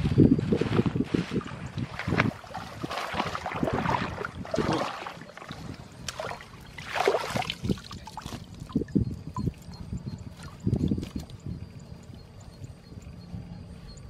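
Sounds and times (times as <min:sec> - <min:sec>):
water splashing and pouring: 0:01.4 - 0:08.8.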